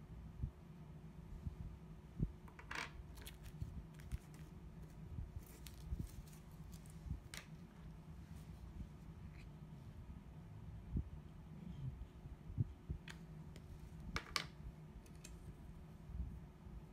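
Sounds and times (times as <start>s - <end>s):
low steady hum: 0.0s - 16.9s
plastic bag rustling: 3.1s - 7.3s.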